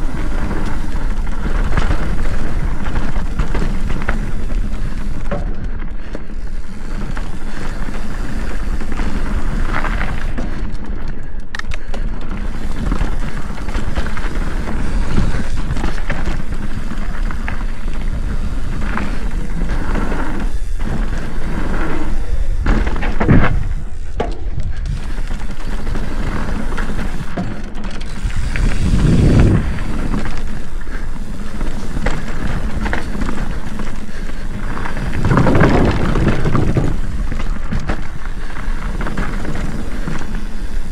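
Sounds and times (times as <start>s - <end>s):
bike thumping over bumps: 0.0s - 11.0s, 11.9s - 40.9s
tyre rumble: 12.3s - 40.9s
wind on microphone: 28.1s - 30.6s, 34.5s - 40.1s.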